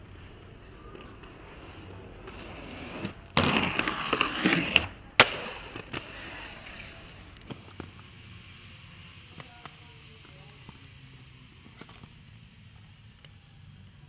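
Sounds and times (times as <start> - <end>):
inline skates grinding: 0.0 - 8.6
skates landing clack: 2.3 - 8.0.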